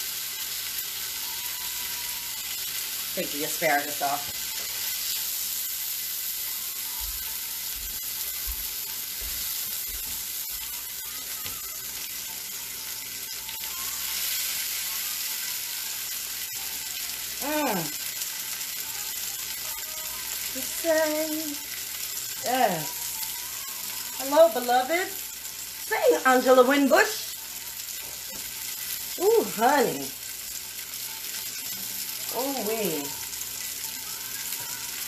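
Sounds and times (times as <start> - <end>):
steak sizzling in a pan: 0.0 - 35.0
woman's voice: 3.1 - 4.4, 17.4 - 18.0, 20.5 - 21.7, 22.4 - 23.2, 24.2 - 25.2, 25.8 - 27.4, 29.2 - 30.2, 32.2 - 33.2.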